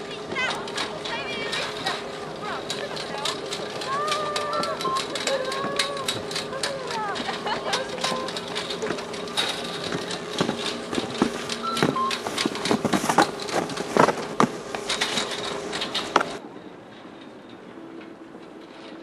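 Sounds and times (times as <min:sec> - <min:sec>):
chairs clattering over sheaves: 0:00.0 - 0:16.4
chairlift machinery humming: 0:00.0 - 0:19.0.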